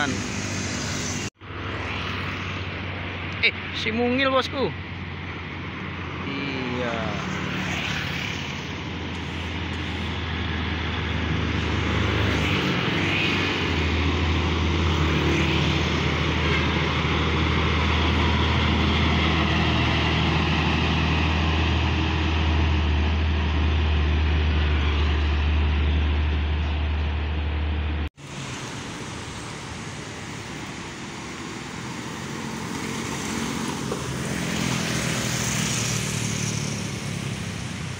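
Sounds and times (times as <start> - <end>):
diesel truck engine driving past: 5.0 - 37.9.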